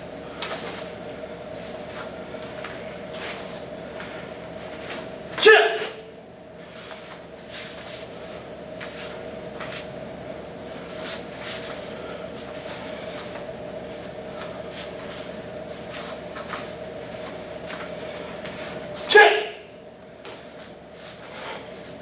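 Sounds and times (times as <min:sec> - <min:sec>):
steady hum: 0:00.0 - 0:22.0
bare feet on foam mats: 0:00.3 - 0:05.6, 0:06.6 - 0:09.9, 0:10.8 - 0:19.1.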